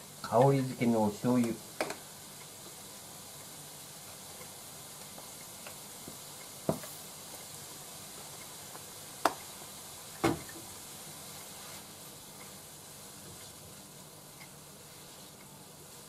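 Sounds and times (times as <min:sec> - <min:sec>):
stir-fry sizzling in a frying pan: 0:00.0 - 0:16.0.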